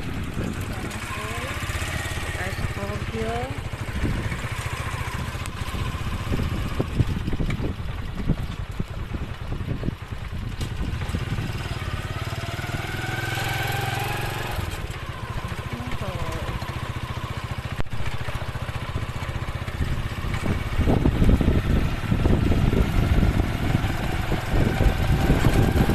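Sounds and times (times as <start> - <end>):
small motorcycle engine running: 0.0 - 25.9.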